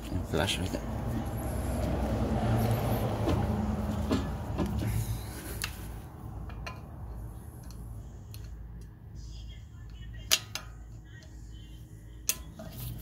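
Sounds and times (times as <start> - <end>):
metallic clicks of tools: 7.6 - 9.0.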